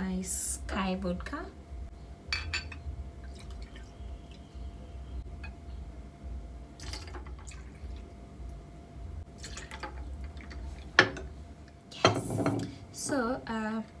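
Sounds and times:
steady low hum: 0.0 - 14.0
light glass clinks: 2.3 - 2.8
liquid trickling into glass: 3.2 - 4.5, 6.8 - 8.1.

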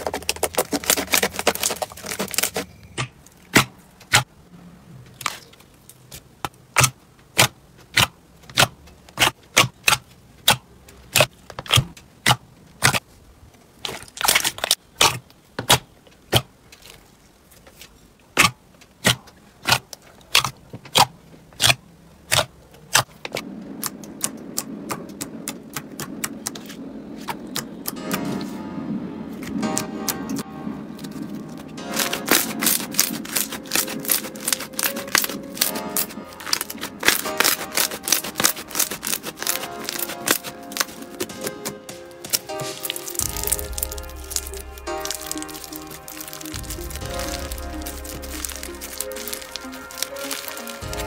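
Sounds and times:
low steady hum: 26.8 - 51.0.

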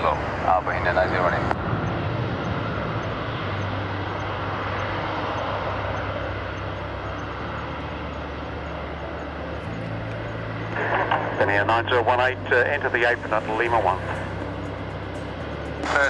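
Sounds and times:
jet engine rushing: 0.0 - 8.9.

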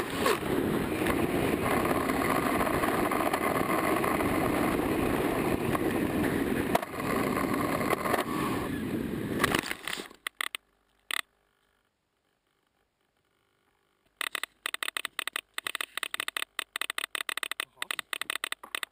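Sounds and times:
wind rush: 0.0 - 9.5
motor and propeller noise: 0.0 - 10.1
hum: 0.0 - 18.9
model plane hitting ground: 6.6 - 10.4
short clicks: 9.4 - 11.3, 14.1 - 18.9.

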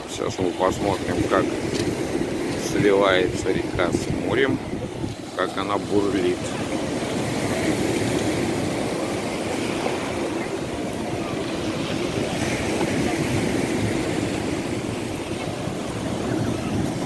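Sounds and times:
waves breaking on pebbles: 4.5 - 17.0.

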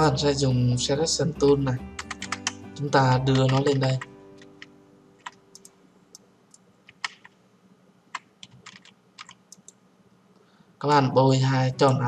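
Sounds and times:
mouse and keyboard clicks: 4.4 - 5.8, 6.5 - 7.4, 8.1 - 9.8.

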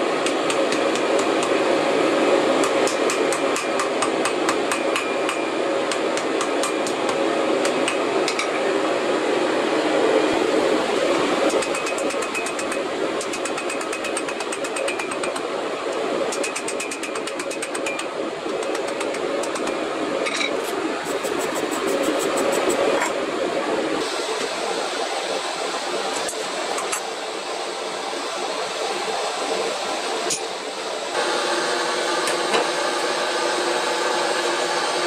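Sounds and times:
steady hum: 0.0 - 35.0
rushing background noise: 9.5 - 24.3.

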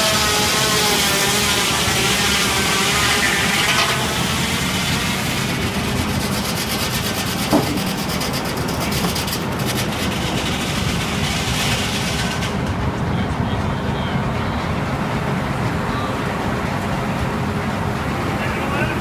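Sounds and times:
sawmill machinery running: 0.0 - 19.0.

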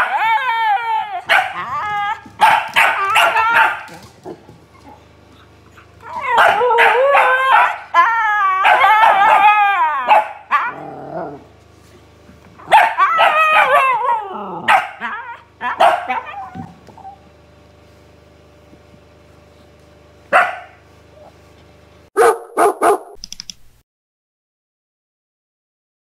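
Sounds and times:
dog howling: 0.0 - 5.0, 5.8 - 11.5, 12.6 - 17.2
dog barking: 1.3 - 1.6, 2.4 - 4.0, 6.4 - 8.0, 8.6 - 10.8, 12.6 - 14.0, 14.6 - 16.5, 20.3 - 20.8, 22.2 - 23.2.

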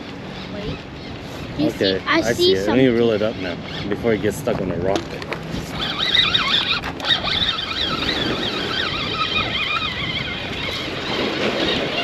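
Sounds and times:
water noise: 0.0 - 12.0
wind: 0.0 - 12.0
fishing reel whine: 5.6 - 12.0.

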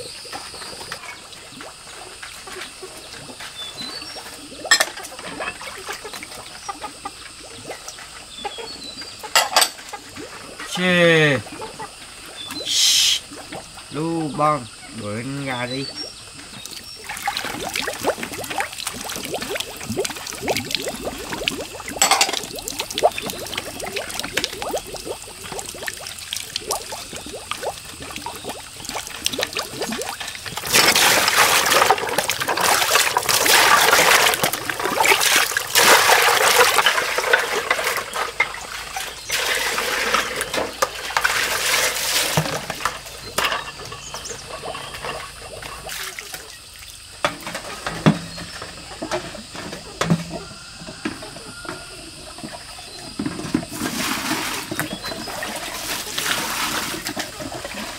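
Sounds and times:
water pouring and splashing: 0.0 - 14.6, 15.4 - 57.9
water sloshing and trickling: 0.0 - 57.9
bowls and plates clinking: 4.7 - 5.8, 9.2 - 9.9, 22.0 - 22.5, 36.7 - 45.9.

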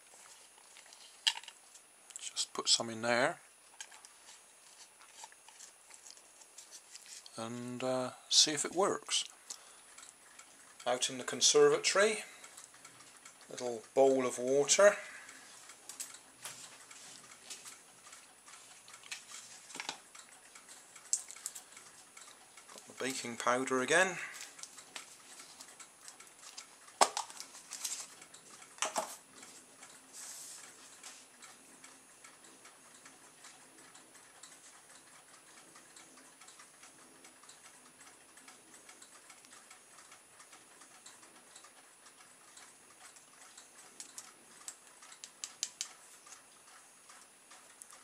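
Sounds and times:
light ticking and tapping: 0.1 - 48.0
small clicks: 30.6 - 48.0.

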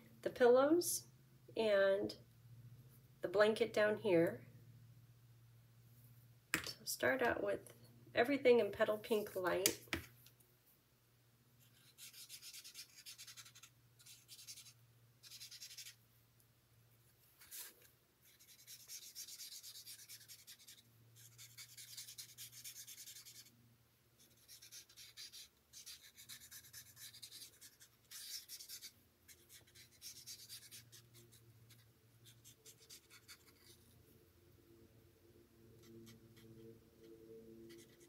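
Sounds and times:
marker nib scratching on card: 11.6 - 16.0, 17.4 - 23.5, 24.2 - 33.9, 35.8 - 37.1, 37.7 - 38.0.

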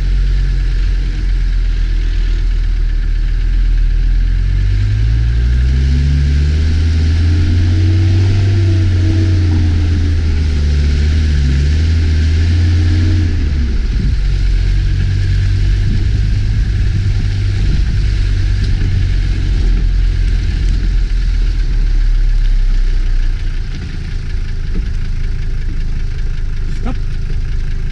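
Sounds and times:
vehicle engine running: 0.0 - 27.9.

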